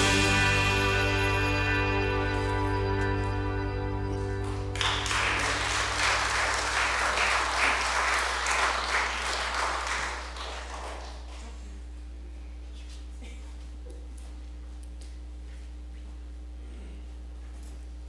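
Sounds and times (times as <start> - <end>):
sung held chord: 0.0 - 7.1
congregation applause: 4.1 - 11.6.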